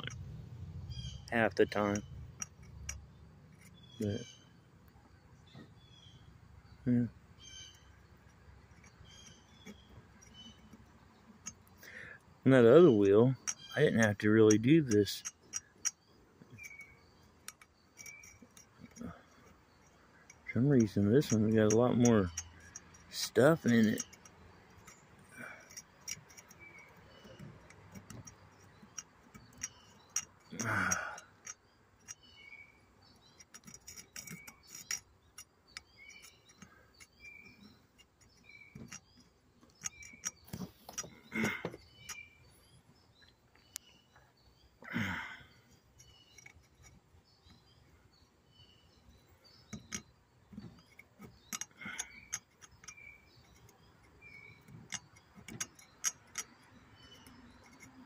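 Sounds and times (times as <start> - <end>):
small birds chirping: 0.0 - 58.0
metal pick scraping dirt: 0.9 - 4.4, 8.7 - 43.1, 44.9 - 48.8, 49.4 - 58.0.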